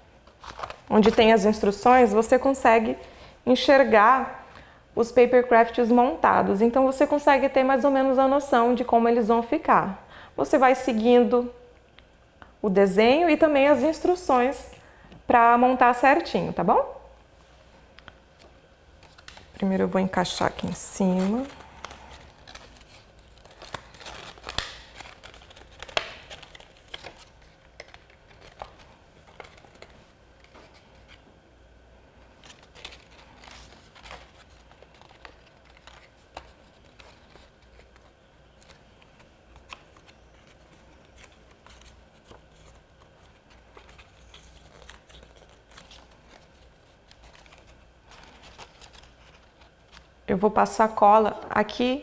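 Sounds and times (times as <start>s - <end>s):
paper rustling and crinkling: 0.3s - 1.4s, 18.4s - 31.2s, 32.3s - 50.1s.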